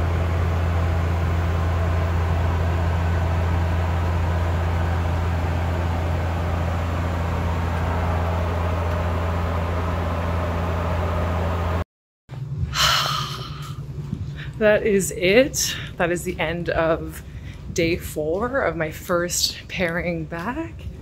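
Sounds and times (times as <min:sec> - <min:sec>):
airflow rushing: 0:00.0 - 0:11.8
propeller drone: 0:00.0 - 0:11.8
higher engine hum: 0:00.0 - 0:17.8.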